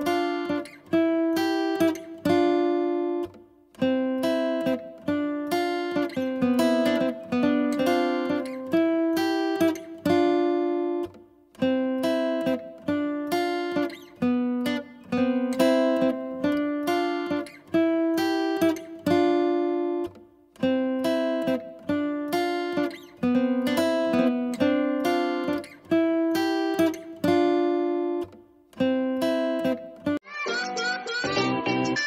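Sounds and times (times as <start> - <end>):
acoustic guitar plucked chords: 0.0 - 32.0.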